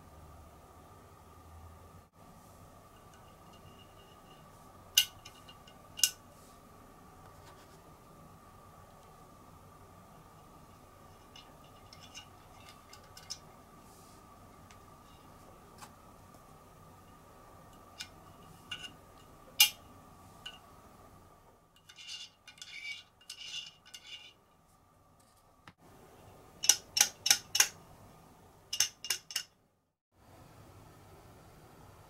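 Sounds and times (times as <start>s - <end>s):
metal rattling and scraping: 10.7s - 13.6s, 21.8s - 24.4s
metal clicks: 26.6s - 27.8s, 28.7s - 29.6s.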